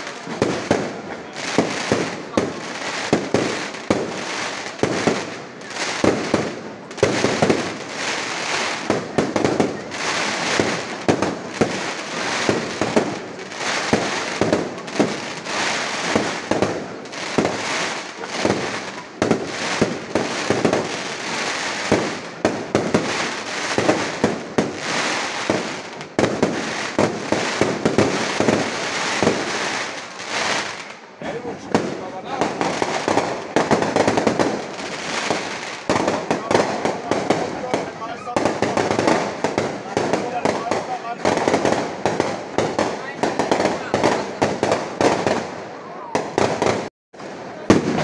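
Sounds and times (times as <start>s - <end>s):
fireworks bursting with sharp bangs: 0.0s - 48.0s.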